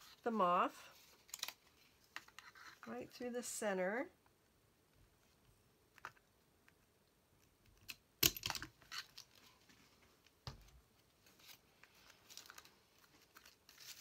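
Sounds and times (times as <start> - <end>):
paper crinkling: 11.2 - 14.0.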